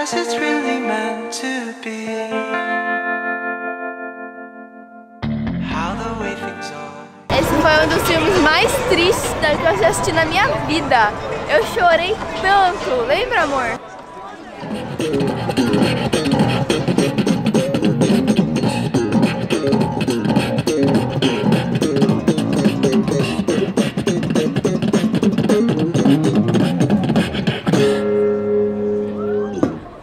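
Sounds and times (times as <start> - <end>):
plucked electric guitar: 0.0 - 9.1, 14.6 - 30.0
person beatboxing: 14.6 - 28.2.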